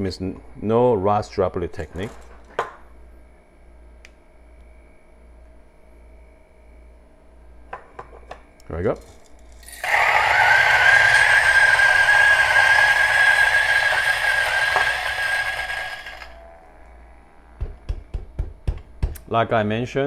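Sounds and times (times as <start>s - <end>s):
coffee grinder whining: 9.5s - 17.7s.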